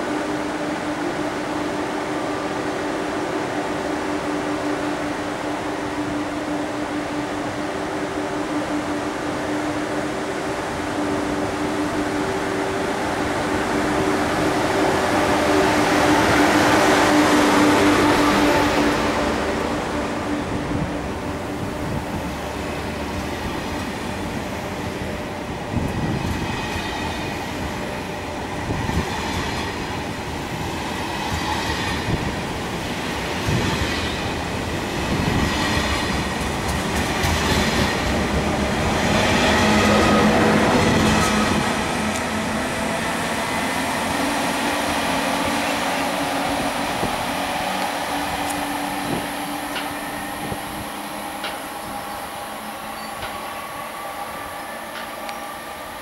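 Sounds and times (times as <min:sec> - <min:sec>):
train running gear hum: 0:00.0 - 0:56.0
train wheels clicking over rail joints: 0:33.1 - 0:42.6, 0:44.4 - 0:53.6, 0:54.8 - 0:55.6.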